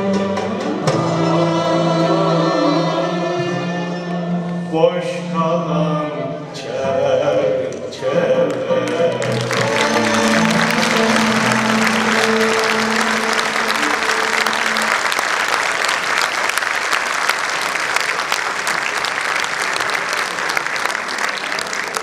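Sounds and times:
held music notes: 8.0s - 15.9s
audience applauding: 8.4s - 22.0s.

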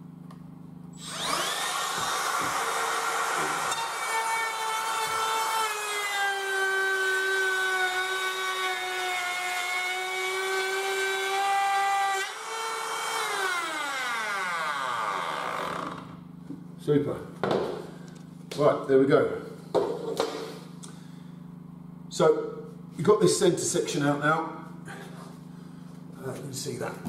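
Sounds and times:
router spinning down: 1.0s - 16.2s
trim router whining: 1.0s - 16.2s.

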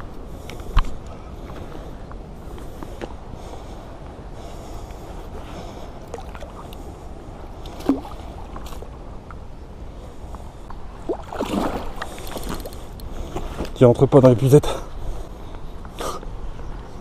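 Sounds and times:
water lapping against float tube: 6.0s - 6.9s, 7.6s - 8.9s, 11.0s - 13.0s
fish thrashing and splashing: 11.0s - 12.9s.

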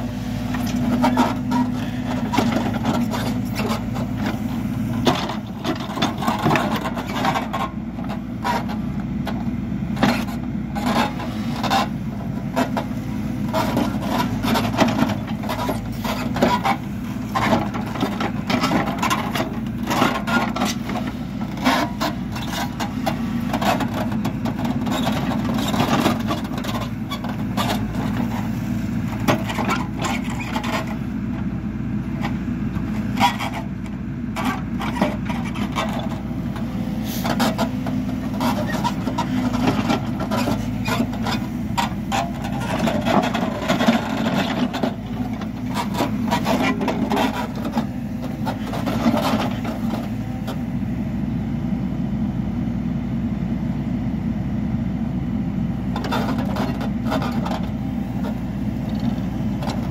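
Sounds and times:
backhoe scraping and knocking: 0.0s - 51.1s, 55.7s - 59.9s
diesel engine running: 0.0s - 59.9s.

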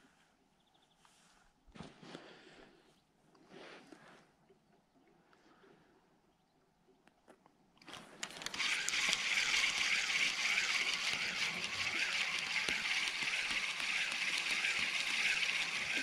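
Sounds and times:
faint handling clicks: 7.0s - 16.0s.

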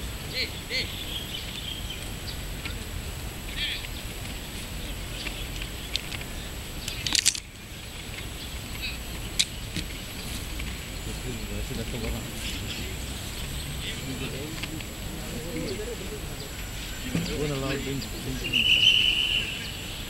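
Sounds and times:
sharp clicks: 5.2s - 7.5s, 9.4s - 9.9s
faint bird chirps: 15.4s - 20.0s.

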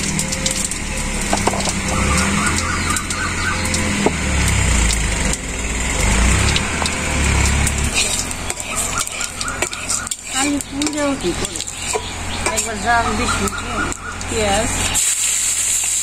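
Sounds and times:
low engine drone: 0.0s - 15.0s.

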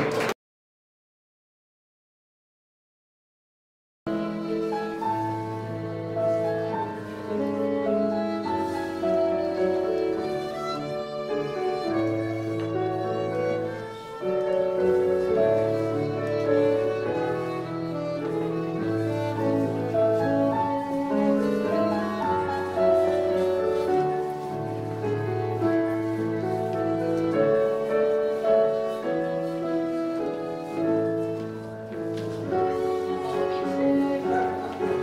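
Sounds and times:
fiddle tune: 4.1s - 35.0s
piano: 4.1s - 35.0s.

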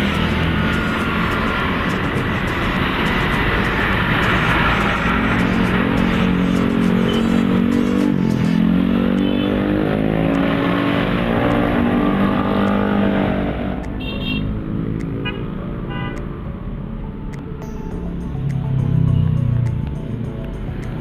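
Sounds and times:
engine accelerating: 0.0s - 13.8s
motorcycles and cars passing: 0.0s - 21.0s.

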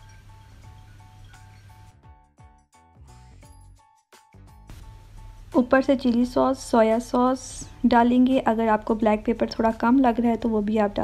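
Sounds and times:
faint background music: 4.7s - 11.0s.

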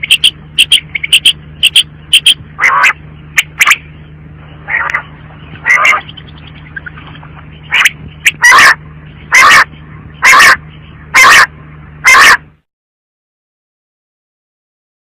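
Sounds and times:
quail calling: 0.0s - 3.9s, 4.6s - 12.5s
low hum: 0.0s - 12.7s.

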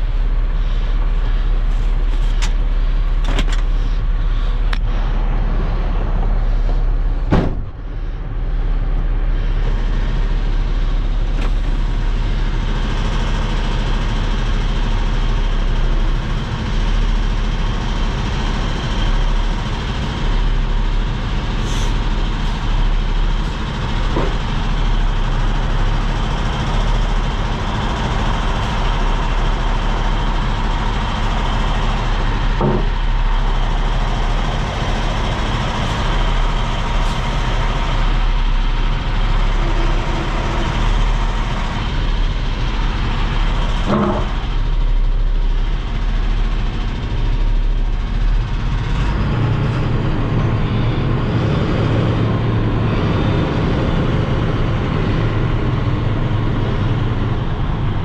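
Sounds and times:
diesel truck engine running: 0.0s - 58.0s
sharp knock: 7.3s - 7.7s.

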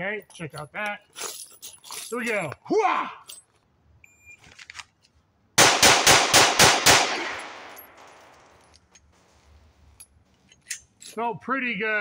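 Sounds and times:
rapid pistol shots: 5.6s - 8.0s
gunshot echo: 5.6s - 8.4s.

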